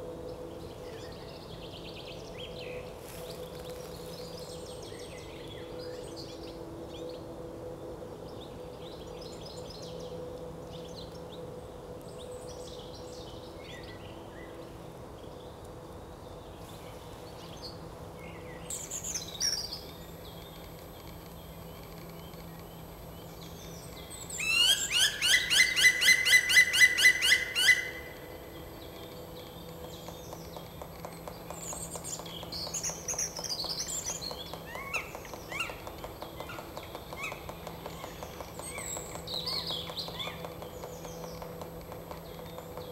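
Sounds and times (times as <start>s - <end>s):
songbirds chirping: 0.0s - 42.9s
woodpecker ringing calls: 24.0s - 42.9s.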